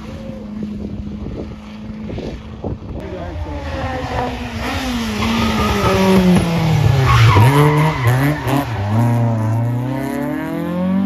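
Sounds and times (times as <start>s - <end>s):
rally car engine revving: 3.0s - 11.0s.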